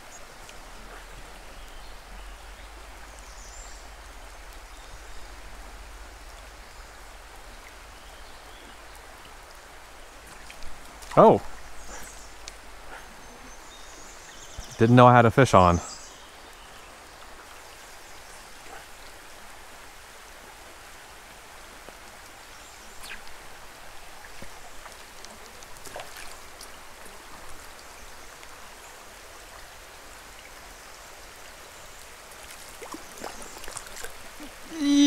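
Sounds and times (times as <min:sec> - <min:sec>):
creek rushing: 0:00.0 - 0:35.0
rain falling: 0:00.0 - 0:35.0.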